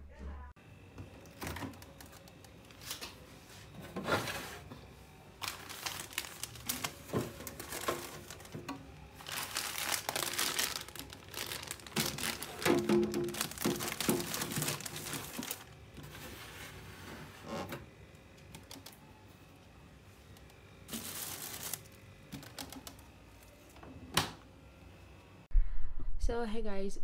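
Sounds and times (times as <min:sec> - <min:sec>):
plastic bags crinkling: 0:05.3 - 0:16.2, 0:20.8 - 0:23.0.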